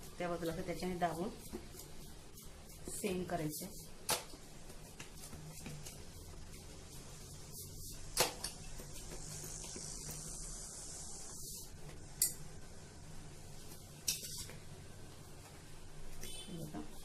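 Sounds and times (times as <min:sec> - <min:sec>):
hand rubbing dough: 0:00.0 - 0:11.8.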